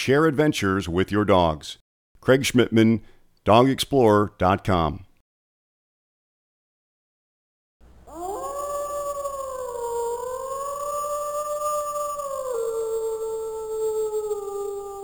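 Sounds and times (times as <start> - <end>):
dog howling: 8.1 - 15.0.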